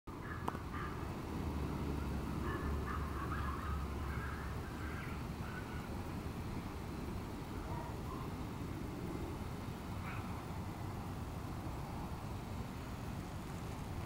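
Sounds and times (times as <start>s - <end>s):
low rumble of wind on microphone: 0.1s - 14.0s
faint bird calls: 0.2s - 1.2s, 2.0s - 6.0s, 7.6s - 8.4s, 10.0s - 10.5s.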